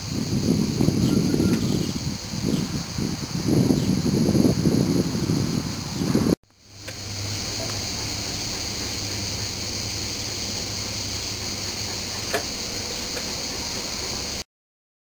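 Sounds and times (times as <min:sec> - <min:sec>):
background hiss: 0:00.0 - 0:14.4
low hum: 0:06.5 - 0:14.4.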